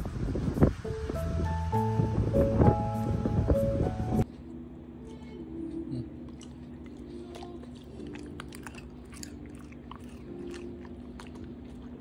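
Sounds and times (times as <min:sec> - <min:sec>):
dog chewing with wet crunches: 0:06.3 - 0:12.0.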